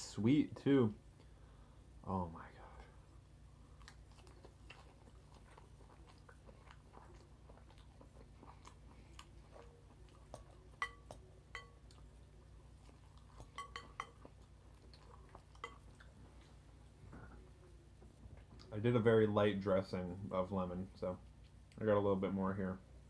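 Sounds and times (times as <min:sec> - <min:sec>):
chewing salad: 0:03.0 - 0:18.8
fork clinking against glass bowl: 0:10.3 - 0:12.0, 0:13.3 - 0:14.4, 0:15.5 - 0:15.9.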